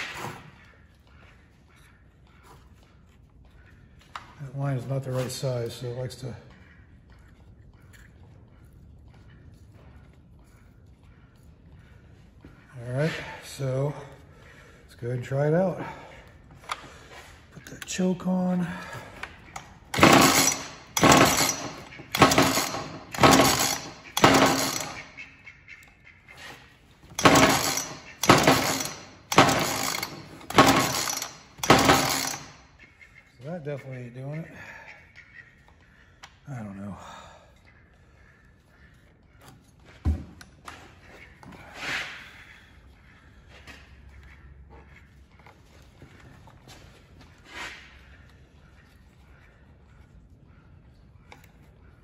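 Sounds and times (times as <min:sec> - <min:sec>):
chainsaw engine cranking: 0:19.6 - 0:25.1, 0:27.1 - 0:32.6
recoil starter cord pulls: 0:19.6 - 0:25.1, 0:27.1 - 0:32.6.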